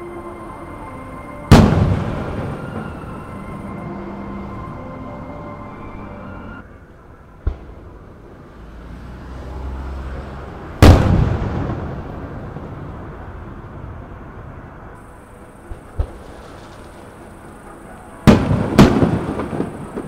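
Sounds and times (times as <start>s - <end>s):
sharp bang: 1.5s - 3.0s
fireworks boom: 1.5s - 3.3s, 10.8s - 13.0s, 18.2s - 20.0s.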